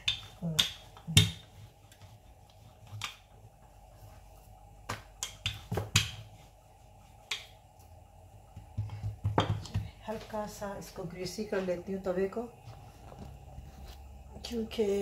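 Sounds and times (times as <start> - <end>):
rolling pin knocking on board: 0.0 - 1.6, 4.8 - 6.3, 8.5 - 10.0
rolling pin rolling dough: 0.0 - 15.0.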